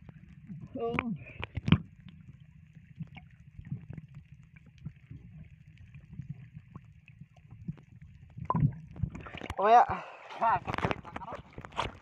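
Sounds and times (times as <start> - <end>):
faint clicks and knocks: 0.0 - 9.6
muffled underwater rumble: 0.0 - 12.0.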